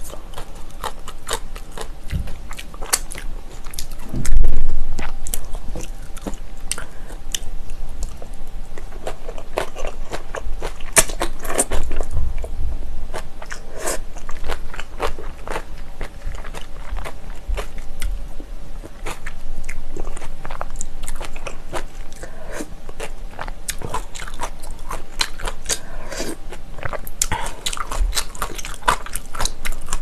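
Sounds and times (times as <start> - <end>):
close chewing of crunchy food: 0.0 - 30.0
loud low thump: 4.1 - 4.9.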